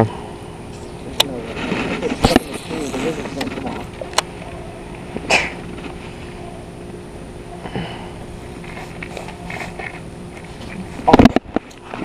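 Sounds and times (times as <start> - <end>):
rush of noise: 1.7 - 5.2.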